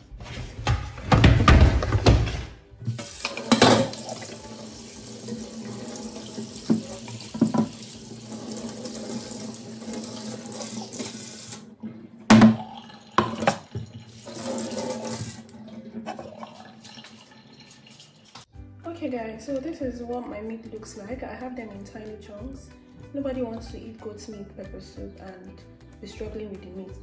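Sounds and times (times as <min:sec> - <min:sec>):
tap water running into sink: 0:02.9 - 0:11.7, 0:12.3 - 0:18.5.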